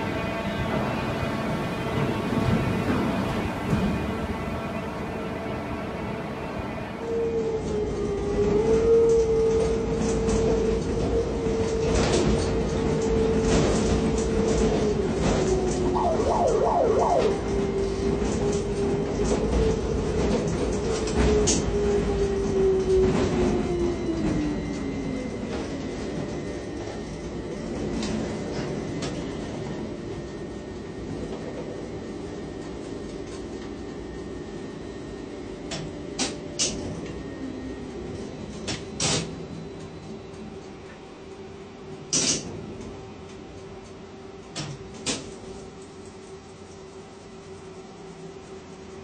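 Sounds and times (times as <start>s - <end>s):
crane machine whine: 15.8s - 18.1s
rapidly warbling tones: 16.0s - 17.5s.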